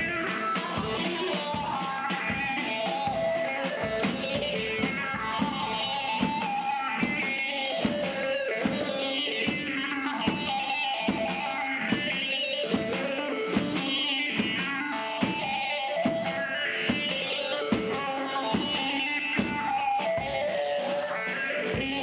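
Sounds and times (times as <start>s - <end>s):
drum kit beat: 0.0s - 20.4s.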